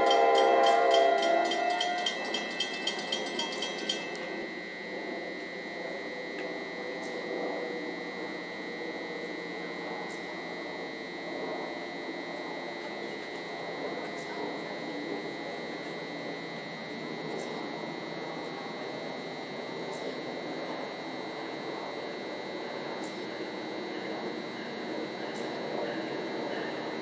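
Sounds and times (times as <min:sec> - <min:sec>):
locomotive horn chord: 0:00.0 - 0:04.3
electric train rumble: 0:00.0 - 0:27.0
thin high whine: 0:00.0 - 0:27.0.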